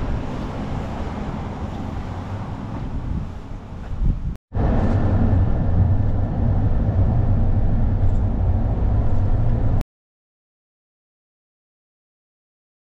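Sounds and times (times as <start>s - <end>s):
vehicle engine rumble: 0.0s - 9.8s.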